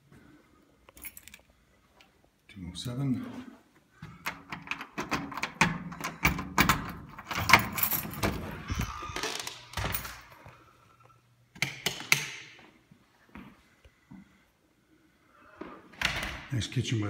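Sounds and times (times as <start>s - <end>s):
keys jangling: 0.9s - 1.5s, 4.5s - 8.5s
door unlocking clicks and rattles: 4.2s - 10.2s.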